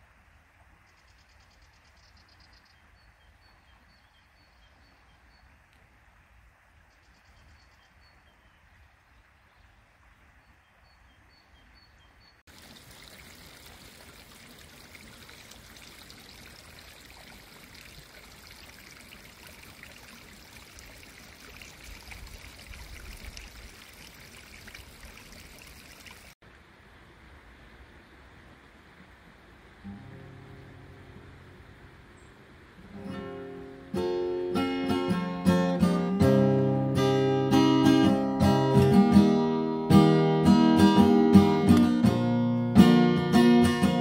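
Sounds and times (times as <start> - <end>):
faint bird chirps: 0.8 - 5.7, 6.8 - 12.4
stream trickling over rocks: 12.4 - 44.0.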